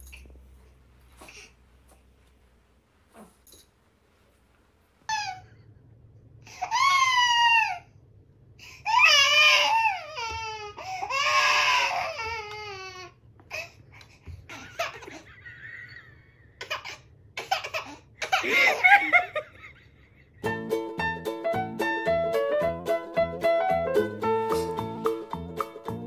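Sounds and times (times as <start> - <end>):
baby squealing with laughter: 5.1 - 5.5, 6.6 - 7.8.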